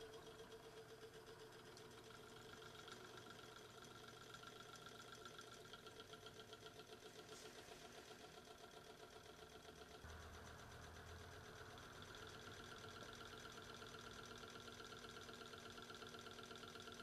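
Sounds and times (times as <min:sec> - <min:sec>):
engine ticking: 0:00.0 - 0:17.0
low hum: 0:10.1 - 0:14.0.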